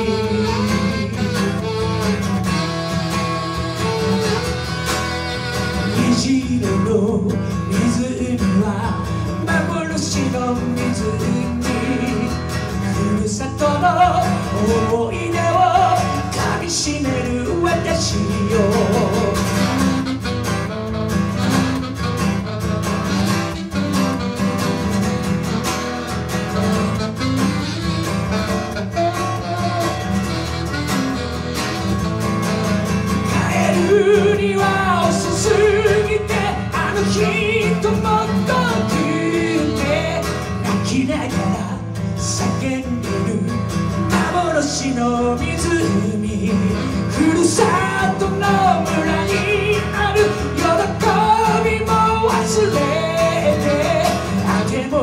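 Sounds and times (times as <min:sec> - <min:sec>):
man singing: 0:00.0 - 0:20.3, 0:33.1 - 0:55.0
guitar accompaniment: 0:00.0 - 0:55.0.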